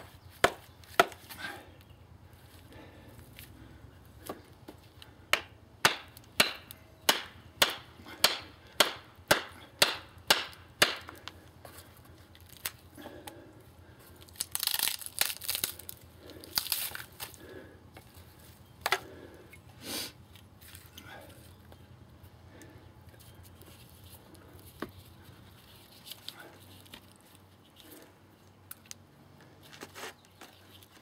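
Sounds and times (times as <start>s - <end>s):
wood crackling as it splits: 4.2s - 17.7s.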